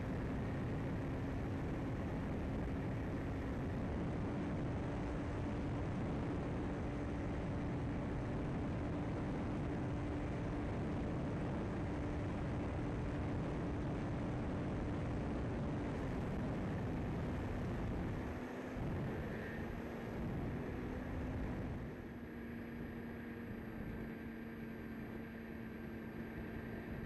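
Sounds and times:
wind rush on microphone: 0:00.0 - 0:27.0.

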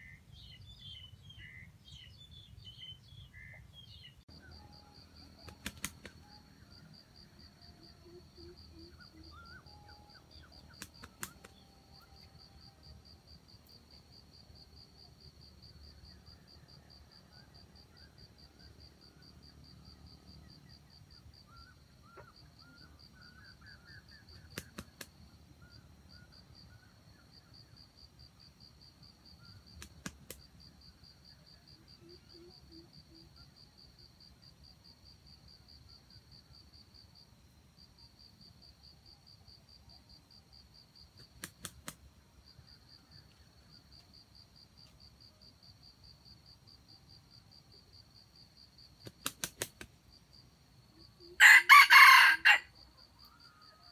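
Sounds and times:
rooster wings beating: 0:05.4 - 0:06.2, 0:10.8 - 0:11.5, 0:49.0 - 0:49.9
insects trilling: 0:46.5 - 0:53.9.

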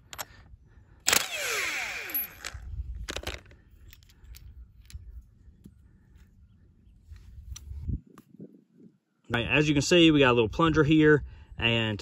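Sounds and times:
impact wrench whining: 0:01.0 - 0:03.4
metal parts clicking: 0:02.1 - 0:05.1.

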